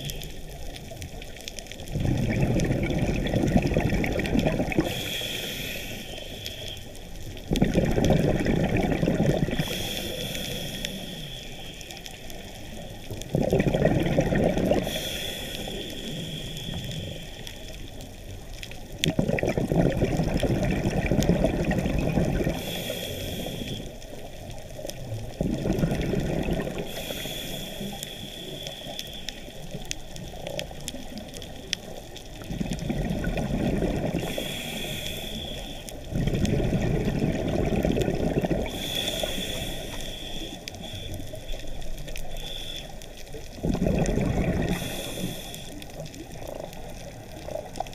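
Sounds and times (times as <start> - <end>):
exhale bubbling underwater: 0.0 - 6.4, 7.3 - 11.5, 12.9 - 23.9, 24.9 - 42.8, 43.4 - 47.9
diver inhaling through regulator: 4.5 - 7.1, 9.0 - 13.0, 13.9 - 18.0, 21.0 - 24.1, 25.5 - 29.8, 33.0 - 46.0.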